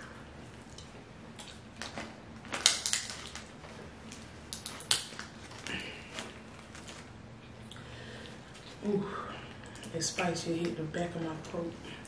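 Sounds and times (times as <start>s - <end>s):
crab shells cracking: 0.8s - 3.5s, 4.5s - 6.0s.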